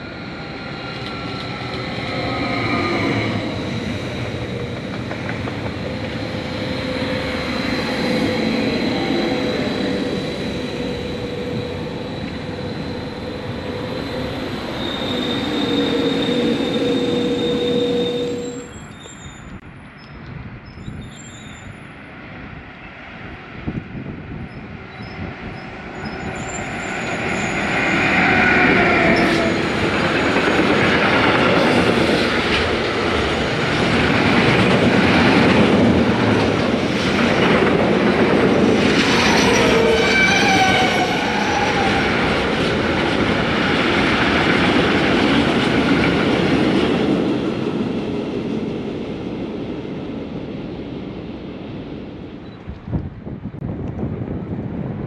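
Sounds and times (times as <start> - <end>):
freight train rumbling past: 0.0 - 55.0
high squealing tones: 6.2 - 19.6.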